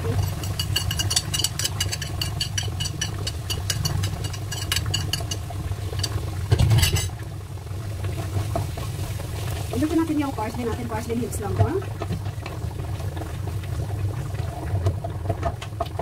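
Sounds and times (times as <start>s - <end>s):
spatula scraping saucepan: 0.0s - 7.2s.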